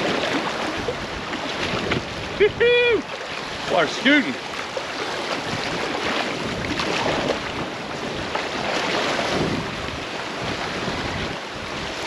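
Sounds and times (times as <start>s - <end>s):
creek water rushing and splashing: 0.0s - 12.0s
wind buffeting microphone: 0.0s - 12.0s.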